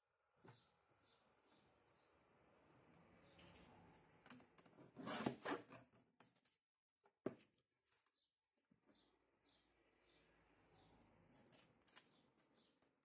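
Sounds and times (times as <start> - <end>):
paper rustling: 6.0 - 8.9, 11.2 - 13.0.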